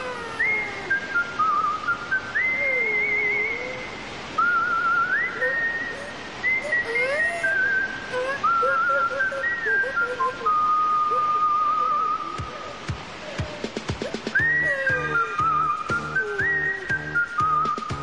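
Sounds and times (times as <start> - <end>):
whistled tune with trills: 0.0 - 12.6, 13.4 - 18.0
steady rushing noise: 0.0 - 18.0
lower gliding whistled notes: 14.3 - 18.0.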